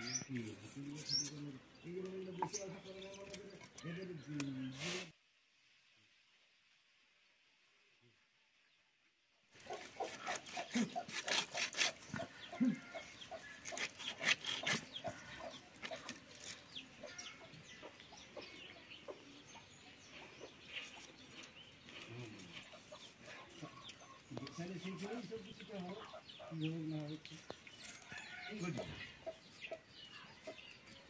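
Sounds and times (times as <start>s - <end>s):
chickens clucking: 9.6s - 31.0s.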